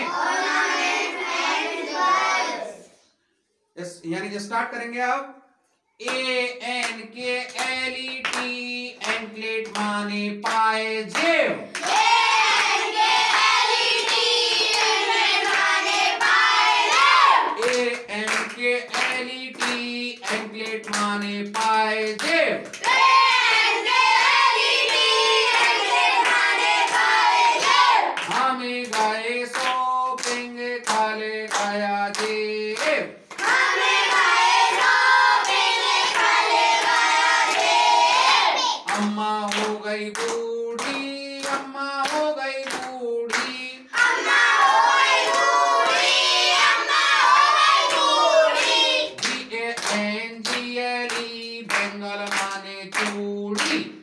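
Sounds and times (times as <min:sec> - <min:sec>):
children chanting: 0:00.0 - 0:03.0, 0:11.8 - 0:17.6, 0:22.8 - 0:28.3, 0:33.4 - 0:38.9, 0:43.9 - 0:49.2
man chanting: 0:06.0 - 0:11.8, 0:17.6 - 0:22.7, 0:28.3 - 0:33.2, 0:38.9 - 0:43.9
hand clapping: 0:06.0 - 0:23.1, 0:24.1 - 0:27.1, 0:28.2 - 0:37.8, 0:38.9 - 0:43.7, 0:47.8 - 0:53.9.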